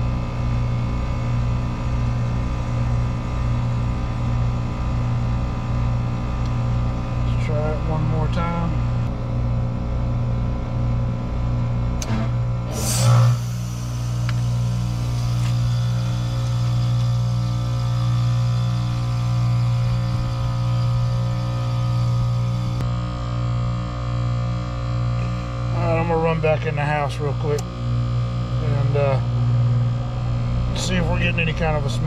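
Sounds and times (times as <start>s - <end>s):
heat pump compressor hum: 0.0s - 32.0s
rush of refrigerant: 12.0s - 22.8s
valve click: 12.7s - 18.9s.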